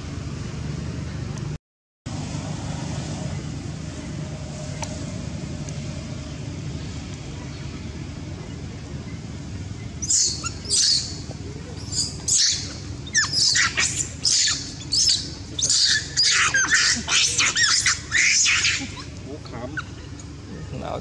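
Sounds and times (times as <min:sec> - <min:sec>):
monkey screaming: 0:10.0 - 0:20.7.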